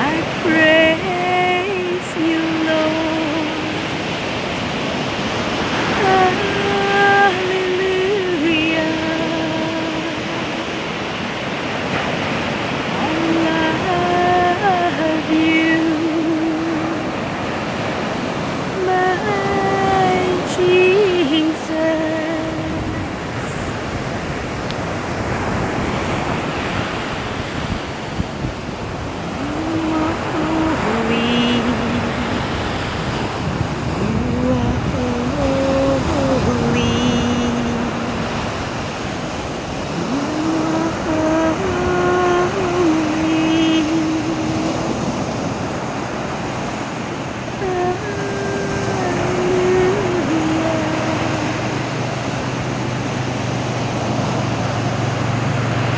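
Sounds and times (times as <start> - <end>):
person humming slow tune: 0.0 - 3.9, 5.8 - 10.8, 13.0 - 17.2, 18.7 - 23.9, 29.2 - 32.7, 33.8 - 38.4, 39.9 - 45.6, 47.4 - 53.4
ocean surf breaking on shore: 0.0 - 55.9.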